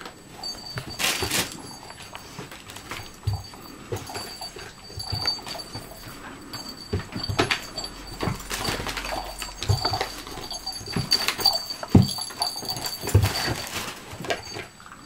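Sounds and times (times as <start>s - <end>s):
plastic packets rustling: 0.0s - 4.3s, 7.1s - 14.7s
paw taps: 0.7s - 14.7s.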